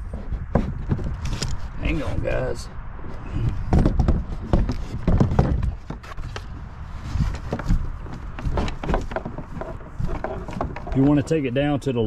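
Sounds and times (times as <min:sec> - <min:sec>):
kayak seat frame knocking: 0:03.6 - 0:06.0, 0:07.3 - 0:11.4.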